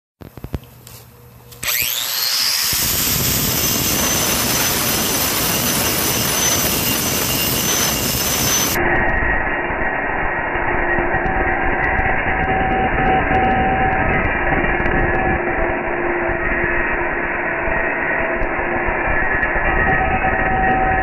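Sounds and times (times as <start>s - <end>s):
angle grinder grinding stone: 1.6s - 8.8s.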